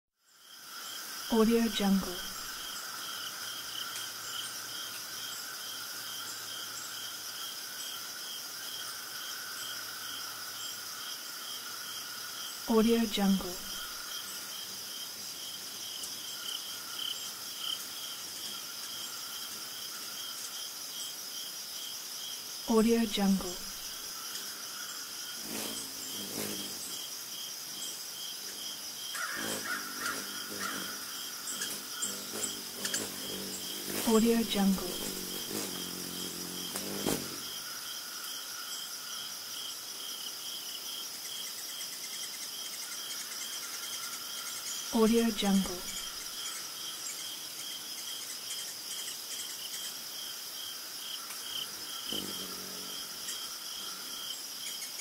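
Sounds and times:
cricket chorus trilling: 0.2 - 55.0
insect pulsing: 0.3 - 55.0.

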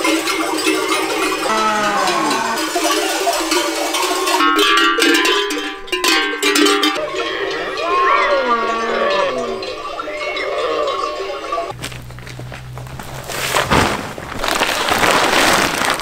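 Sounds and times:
livestock bells clanking: 0.0 - 12.2
animals calling: 7.0 - 12.5.

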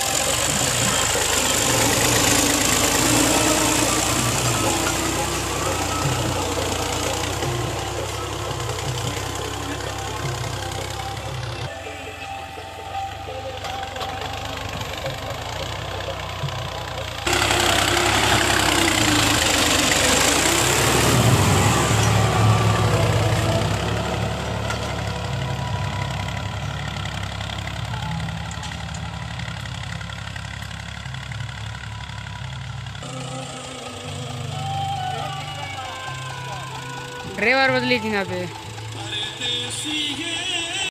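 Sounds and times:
tractor diesel engine running: 0.0 - 40.9
cultivator rushing noise: 17.3 - 25.2.

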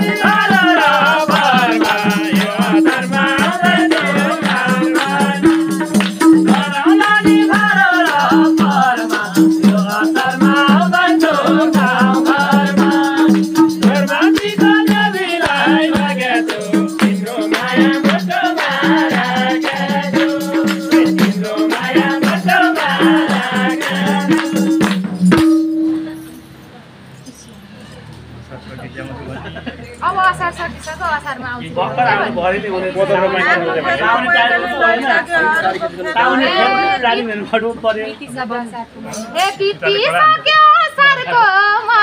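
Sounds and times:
people singing: 0.0 - 25.2, 31.7 - 37.3
hand drum strokes: 0.0 - 26.6
percussive jingle: 0.0 - 26.8.

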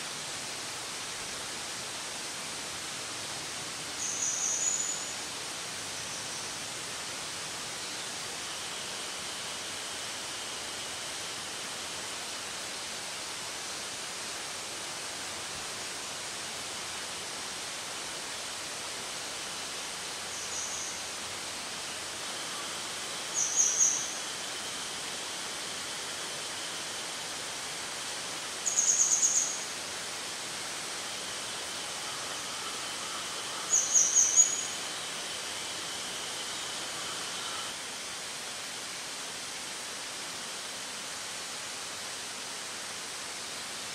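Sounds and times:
steady outdoor hiss: 0.0 - 43.9
bird's high trilled call: 4.0 - 5.1, 20.3 - 21.0, 23.3 - 24.2, 28.6 - 29.6, 32.5 - 34.8.

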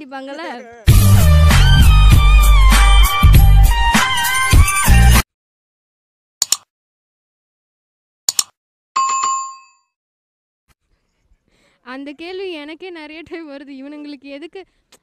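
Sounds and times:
music: 0.9 - 5.2
double clicks: 6.4 - 6.7, 8.3 - 8.6
notification bell ding: 9.0 - 9.9.

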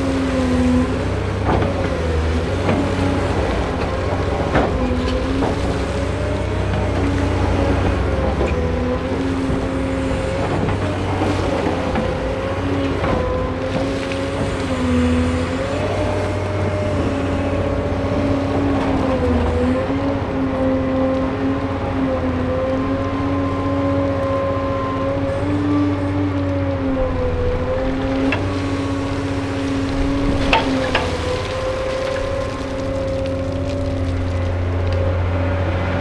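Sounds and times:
excavator diesel engine under load: 0.0 - 36.0
hydraulic whine: 0.0 - 36.0.

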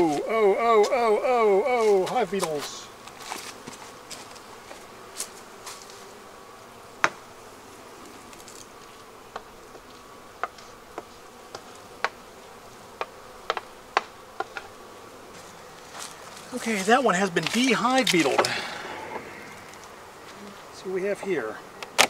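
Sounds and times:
bees buzzing: 0.0 - 22.0
wooden hive frames clicking: 8.3 - 20.3, 21.7 - 22.0.

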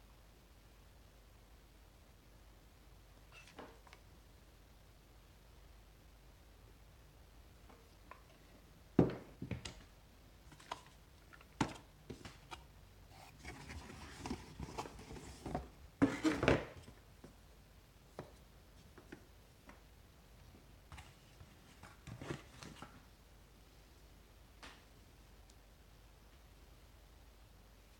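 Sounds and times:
cardboard rustling and scraping: 11.6 - 17.0, 21.0 - 23.0.

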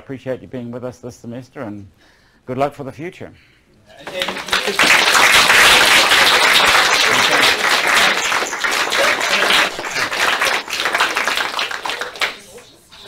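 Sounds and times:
audience applauding: 4.0 - 12.7.

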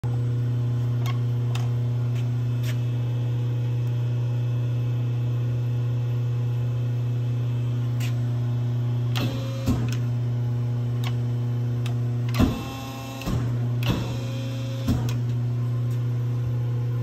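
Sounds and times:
machine electrical hum: 0.0 - 17.0.

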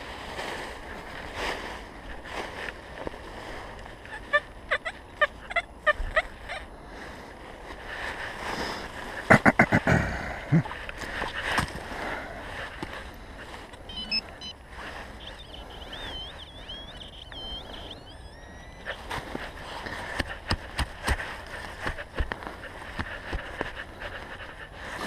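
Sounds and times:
dry leaves and brush rustling: 0.0 - 4.6, 10.8 - 13.9, 18.8 - 25.0
metal detector beeping: 13.7 - 20.7.

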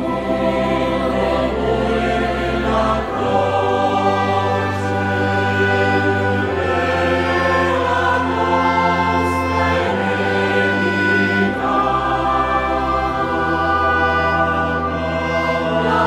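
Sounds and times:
choir singing sustained chords: 0.0 - 16.0.

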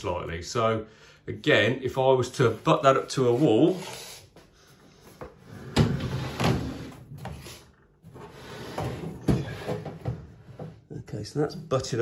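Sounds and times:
microwave feet scraping worktop: 5.4 - 10.8.

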